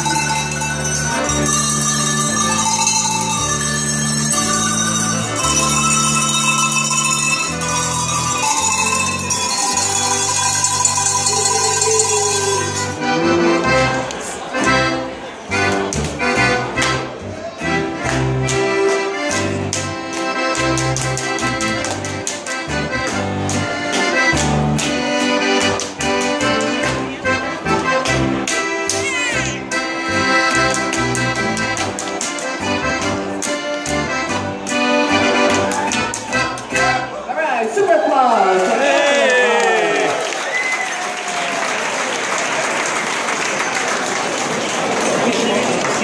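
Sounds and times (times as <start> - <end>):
cowbells playing a tune: 0.0 - 14.0, 17.6 - 37.1
bouncing bass line: 0.0 - 15.0, 15.6 - 37.0
low held accompaniment notes: 0.0 - 35.6.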